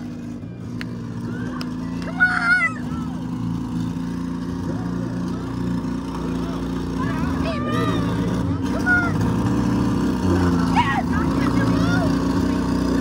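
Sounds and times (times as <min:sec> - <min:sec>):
car engines running: 0:00.0 - 0:13.0
crowd chatter: 0:00.0 - 0:13.0
loud shout: 0:01.2 - 0:03.3, 0:06.2 - 0:09.3, 0:10.3 - 0:12.2.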